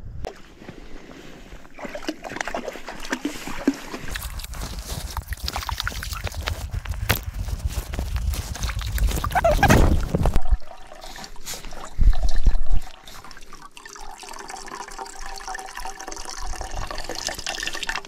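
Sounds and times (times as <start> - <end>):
rough low rumbling: 4.3 - 10.6
water trickling into metal pot: 10.5 - 18.0.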